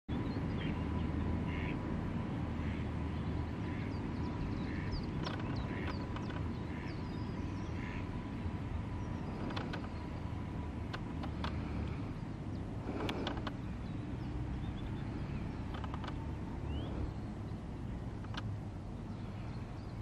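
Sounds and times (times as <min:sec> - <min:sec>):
steady low rumble: 0:00.1 - 0:20.0
short bird calls: 0:01.5 - 0:01.8, 0:03.6 - 0:08.2
high chirps of small birds: 0:02.6 - 0:08.3, 0:08.9 - 0:20.0.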